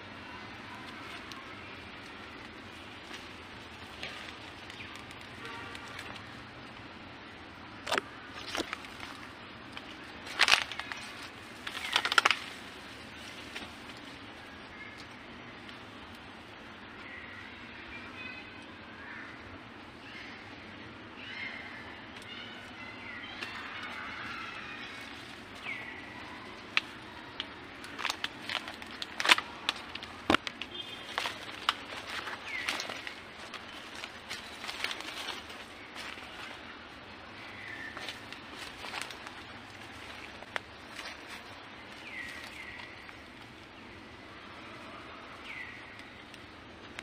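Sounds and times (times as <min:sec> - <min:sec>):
sharp clicks and crackles: 0:00.8 - 0:06.9, 0:07.8 - 0:12.7, 0:26.7 - 0:36.6, 0:45.9 - 0:47.0.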